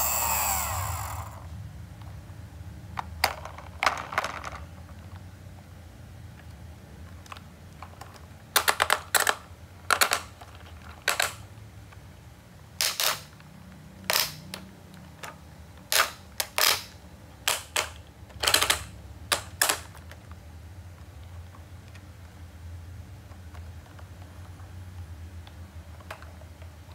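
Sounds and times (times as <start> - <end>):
faint low hum: 0.0 - 12.8
plastic toy clicking and rattling: 3.2 - 4.7, 7.1 - 11.5, 12.8 - 13.4, 14.0 - 20.4.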